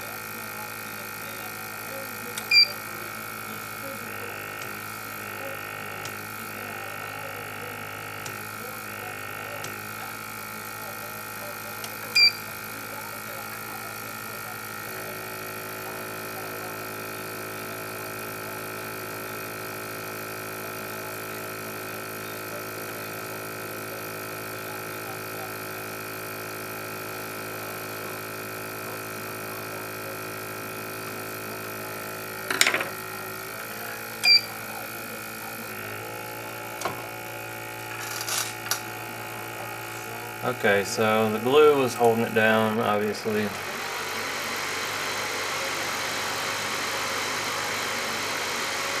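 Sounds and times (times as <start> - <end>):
heaters and fans humming: 0.0 - 14.8, 30.8 - 49.0.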